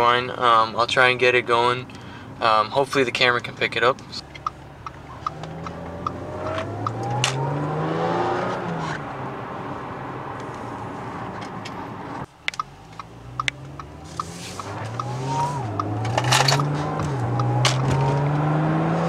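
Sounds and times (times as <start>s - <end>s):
light regular ticking: 3.9s - 6.2s, 12.4s - 16.0s
car engine accelerating: 4.3s - 19.0s
supercharger whine: 4.9s - 19.0s.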